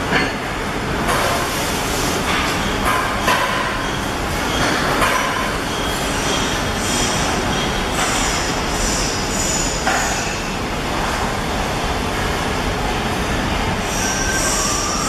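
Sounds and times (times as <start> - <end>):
high-pitched machine whines: 2.3 - 11.2, 11.8 - 15.0
packaging machines din: 13.8 - 15.0.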